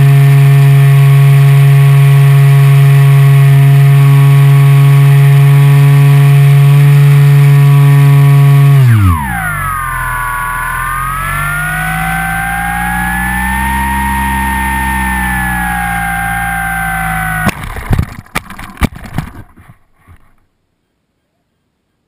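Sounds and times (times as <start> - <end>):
rc plane motor and propeller humming: 0.0 - 19.4.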